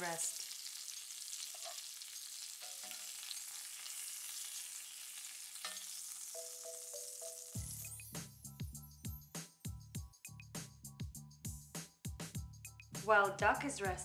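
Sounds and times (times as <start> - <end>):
meat sizzling in grill pan: 0.0 - 8.1.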